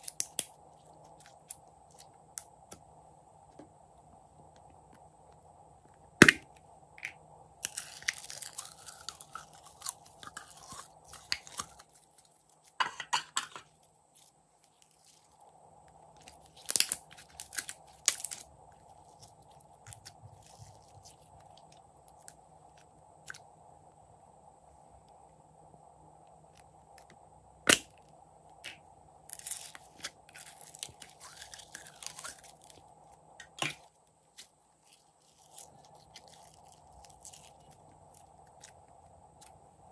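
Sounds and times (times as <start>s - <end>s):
slime crackling and squelching: 7.0s - 12.8s, 16.2s - 23.4s, 28.6s - 39.6s.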